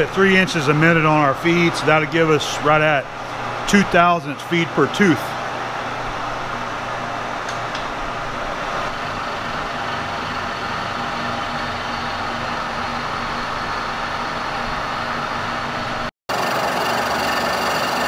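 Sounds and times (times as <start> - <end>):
milling machine humming: 5.2 - 18.0.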